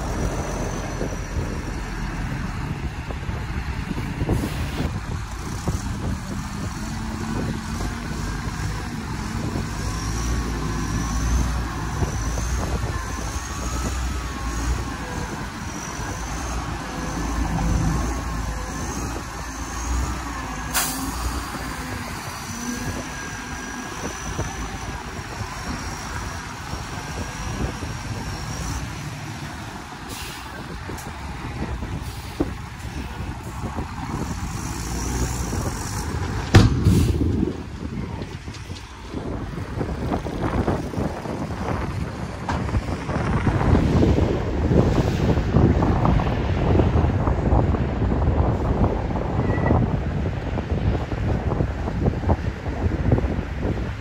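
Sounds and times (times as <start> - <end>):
diesel truck rumbling: 0.0 - 54.0
hydraulic hoist whine: 4.2 - 40.8
sharp knock: 36.5 - 37.2.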